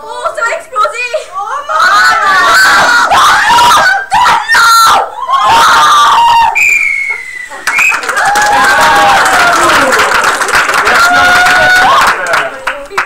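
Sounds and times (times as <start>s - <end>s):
girls screaming and shouting: 1.4s - 6.6s.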